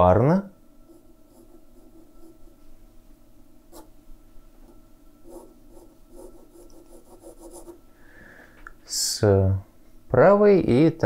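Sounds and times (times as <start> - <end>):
pencil strokes on paper: 0.9 - 2.6, 3.7 - 3.9, 5.2 - 7.8.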